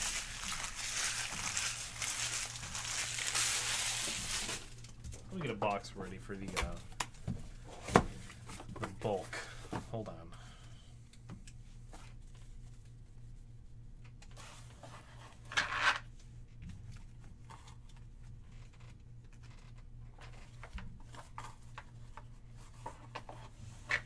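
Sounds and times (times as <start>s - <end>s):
cards and cardboard rustling: 0.0s - 5.8s
steady low hum: 0.0s - 24.0s.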